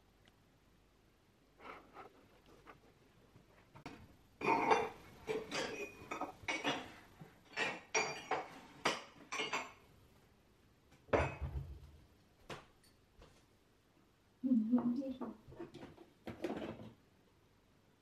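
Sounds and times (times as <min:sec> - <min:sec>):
crockery and cutlery clinking: 0:04.4 - 0:09.9, 0:11.1 - 0:11.6.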